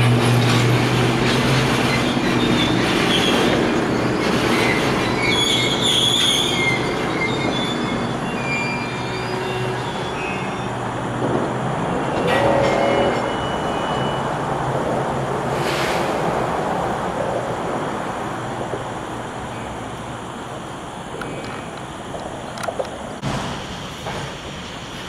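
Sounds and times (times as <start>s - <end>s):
train wheels rumbling on rail: 0.0s - 25.0s
steel wheels squealing: 0.3s - 10.9s, 12.0s - 14.4s.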